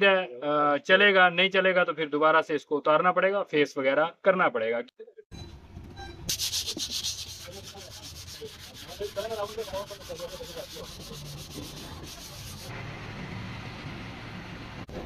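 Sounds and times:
scrubbing on engine metal: 0:06.3 - 0:12.7.

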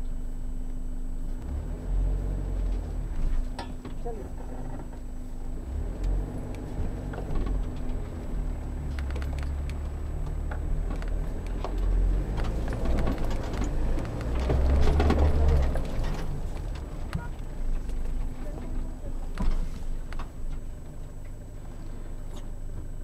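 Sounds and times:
diesel engine low rumble: 0:00.0 - 0:23.0
vehicle rattles and knocks: 0:02.6 - 0:05.2, 0:06.4 - 0:23.0.

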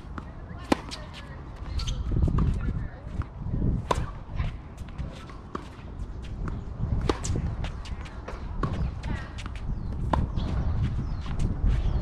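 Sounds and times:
racket hitting ball: 0:00.0 - 0:02.5, 0:03.8 - 0:10.6.

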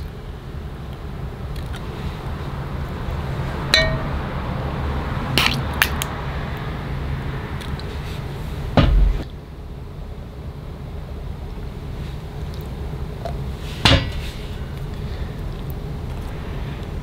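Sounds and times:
steady low hum: 0:00.0 - 0:17.0
metal spoon clinking: 0:03.8 - 0:04.1.

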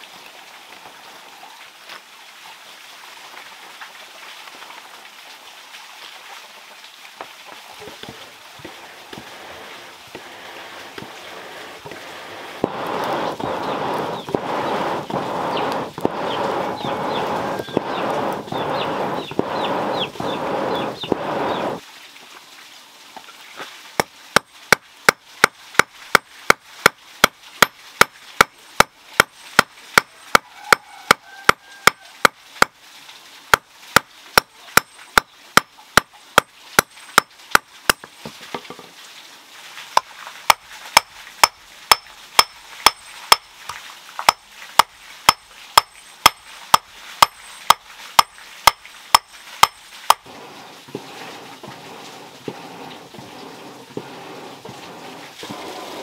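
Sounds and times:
hammer striking iron on anvil: 0:41.4 - 0:43.4, 0:44.3 - 0:50.2.

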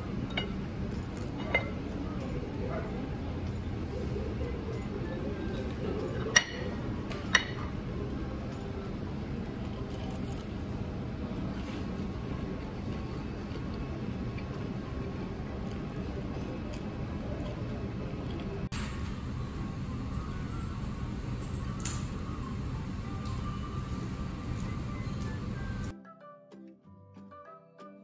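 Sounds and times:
restaurant room noise: 0:00.0 - 0:26.0
fork clinking on ceramic dish: 0:01.2 - 0:01.8.

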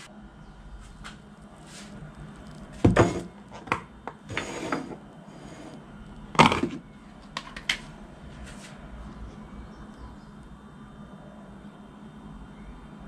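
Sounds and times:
plastic lid scraping: 0:02.8 - 0:05.8, 0:06.4 - 0:06.8.

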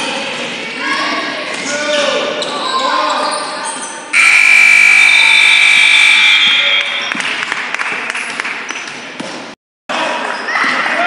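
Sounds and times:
scoreboard buzzer: 0:04.2 - 0:07.0.

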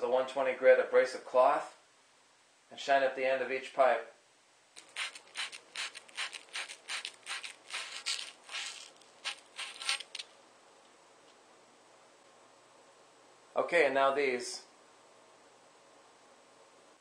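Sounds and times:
abrasive cloth rubbing copper pipe: 0:04.8 - 0:10.2.

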